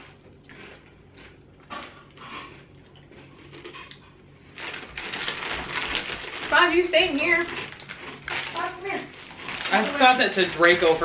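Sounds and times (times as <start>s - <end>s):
rustling: 4.6s - 11.0s.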